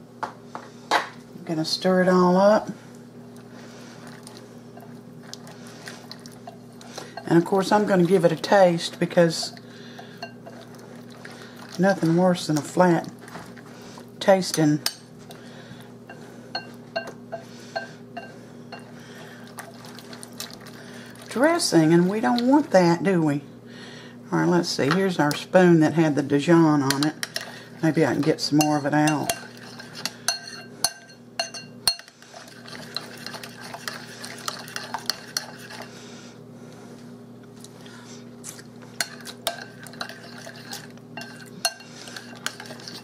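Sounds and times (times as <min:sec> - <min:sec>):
spoon stirring with swishing scrape: 0:03.4 - 0:22.7, 0:26.9 - 0:36.2, 0:38.9 - 0:43.0
spoon clinking against bowl: 0:28.6 - 0:32.1, 0:39.0 - 0:42.9.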